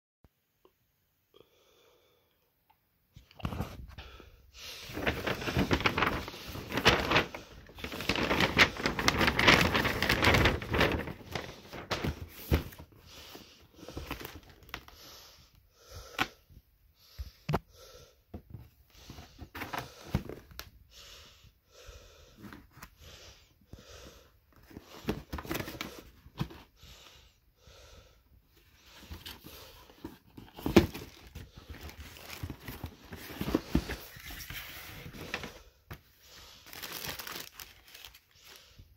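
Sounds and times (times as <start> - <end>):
paper bag rustling and crinkling: 4.8 - 13.0, 13.8 - 14.9, 29.0 - 35.6, 36.6 - 38.8
cardboard box being handled: 5.0 - 7.3, 7.9 - 12.8, 29.0 - 35.5.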